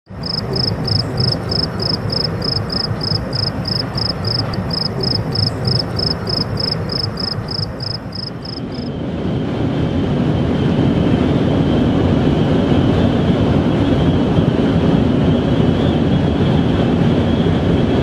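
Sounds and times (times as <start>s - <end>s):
cricket chirping: 0.1s - 8.9s.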